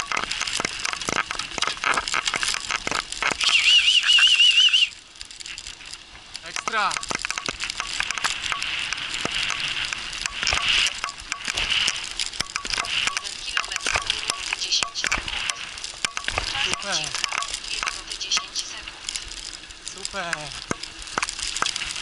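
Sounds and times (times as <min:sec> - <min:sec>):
wheels rolling over gravel: 0:00.0 - 0:22.0
rig rattling and clicking: 0:05.9 - 0:22.0.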